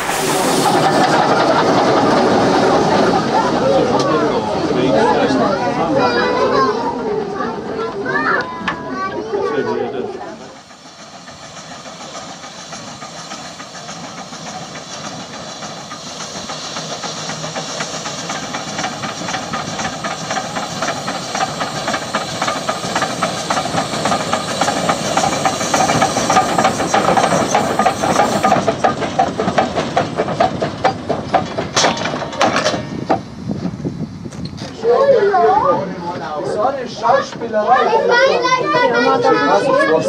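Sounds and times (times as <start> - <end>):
steam hissing: 0.0 - 5.4, 9.3 - 32.2
steam locomotive chuffing: 0.0 - 34.6.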